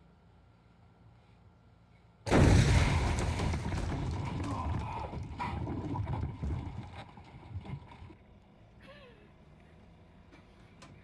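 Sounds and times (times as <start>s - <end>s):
paint bomb blast: 2.3s - 4.6s.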